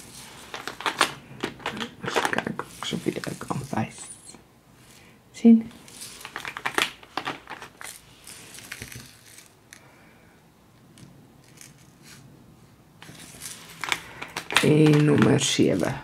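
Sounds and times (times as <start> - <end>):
plastic containers clicking and rattling: 0.4 - 4.0, 6.1 - 8.0, 13.0 - 16.0.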